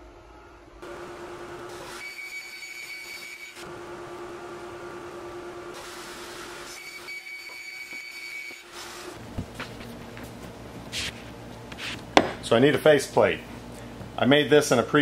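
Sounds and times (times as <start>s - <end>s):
squealing blade whine: 1.9s - 3.7s, 6.7s - 8.7s.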